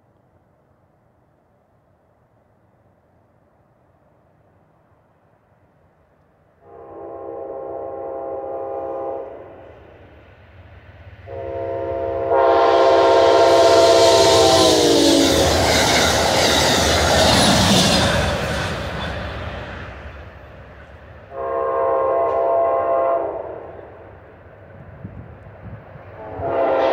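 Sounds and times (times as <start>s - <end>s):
train horn blasts: 6.6s - 9.8s, 11.2s - 15.8s, 21.3s - 24.0s, 26.1s - 26.9s
train rushing and clattering: 8.1s - 26.9s.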